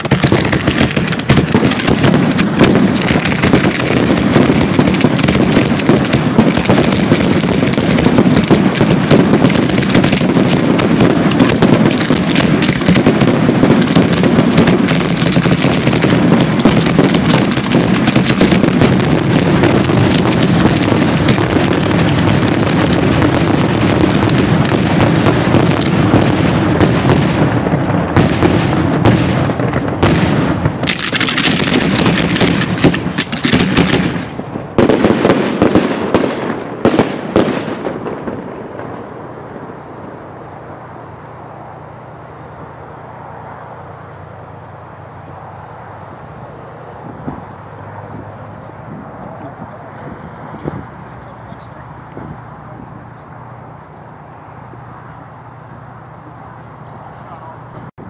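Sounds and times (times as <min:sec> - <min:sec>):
fireworks launching and banging: 0:00.0 - 0:55.0.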